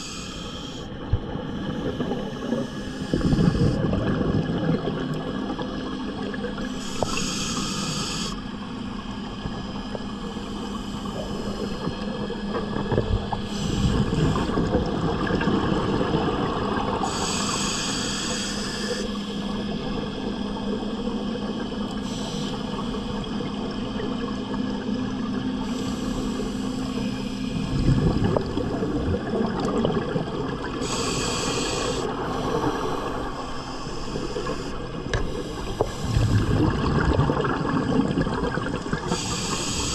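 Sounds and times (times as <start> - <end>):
regulator hissing inhalations: 0.0 - 0.9, 6.8 - 8.4, 17.0 - 19.4, 30.8 - 36.3, 39.1 - 39.9
exhaled bubbles rumbling: 0.9 - 7.2, 8.6 - 17.5, 19.2 - 39.8.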